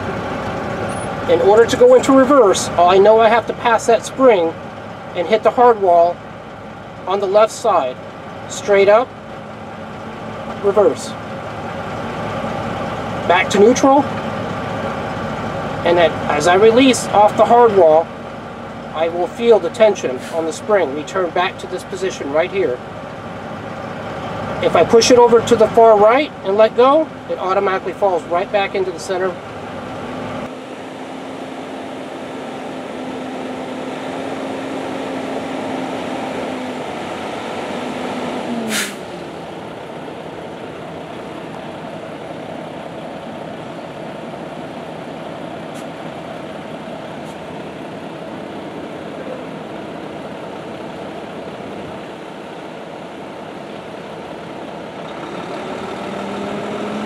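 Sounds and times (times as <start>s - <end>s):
truck engine idling: 0.0s - 57.0s
rising and falling whine: 30.0s - 40.4s.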